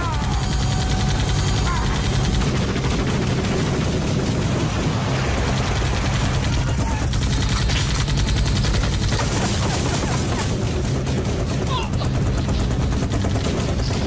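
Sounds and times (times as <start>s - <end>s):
helicopter drone: 0.0s - 14.0s
automatic rifle fire: 5.4s - 14.0s.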